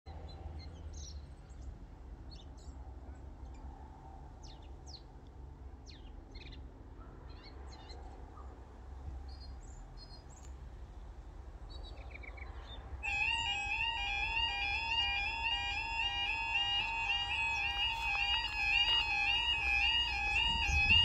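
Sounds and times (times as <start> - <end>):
low outdoor rumble: 0.1 - 21.0
small birds chirping: 5.8 - 21.0.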